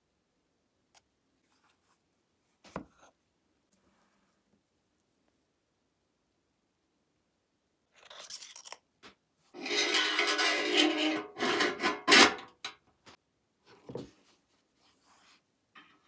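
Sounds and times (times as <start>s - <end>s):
metal scraping and rubbing: 9.5s - 12.8s.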